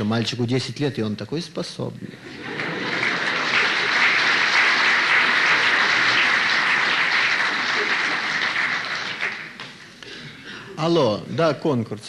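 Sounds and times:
audience applause: 2.3 - 10.0.

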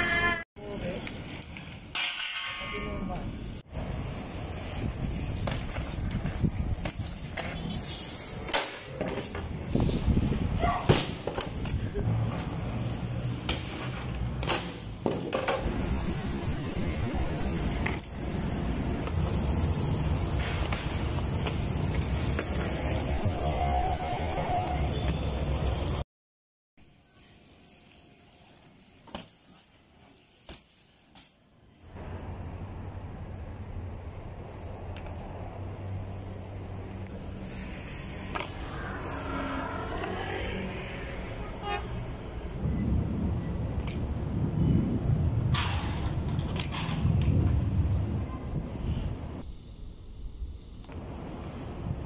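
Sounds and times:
bike tyres rumbling on asphalt: 0.1 - 1.9, 3.3 - 26.0, 31.8 - 49.4
wind on microphone: 9.6 - 10.9
rising and falling whine: 37.7 - 41.4.

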